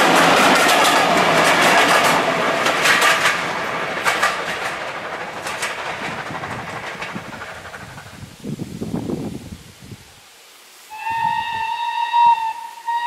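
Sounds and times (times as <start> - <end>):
wheels clicking over rail joints: 0.0 - 9.4
train rumble: 0.0 - 10.1.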